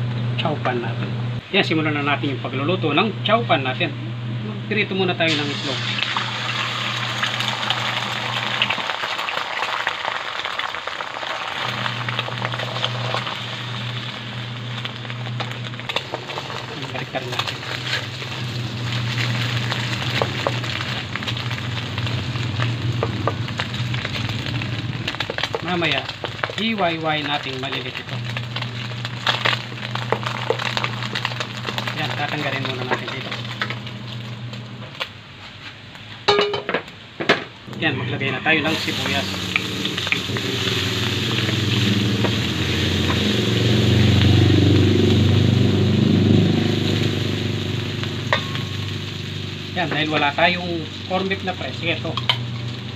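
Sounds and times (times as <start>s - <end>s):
steady low hum: 0.0s - 8.8s, 11.6s - 36.8s, 37.6s - 52.9s
eggs sizzling in oil: 5.2s - 35.0s, 37.7s - 52.9s
vehicle engine: 11.6s - 26.6s, 38.7s - 52.9s
spatula in wok: 14.9s - 26.8s, 46.3s - 50.2s.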